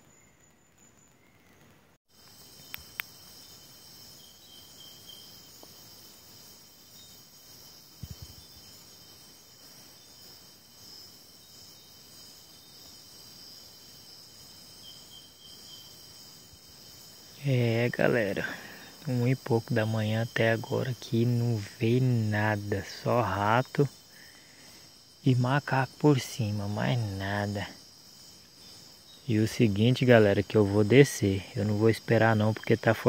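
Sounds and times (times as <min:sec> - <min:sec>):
insects trilling: 0:00.0 - 0:33.0
small clicks: 0:02.6 - 0:03.1.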